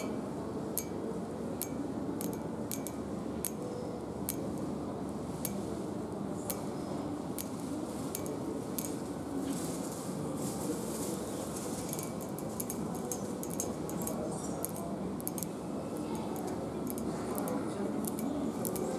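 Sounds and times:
shopping centre background hum: 0.0s - 18.9s
fingernails tapping on metal handrail: 1.6s - 3.6s, 11.9s - 15.6s, 16.2s - 18.9s.

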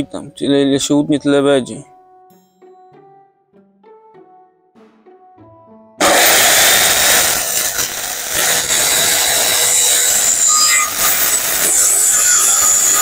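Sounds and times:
circular saw cutting wood: 6.0s - 13.0s.

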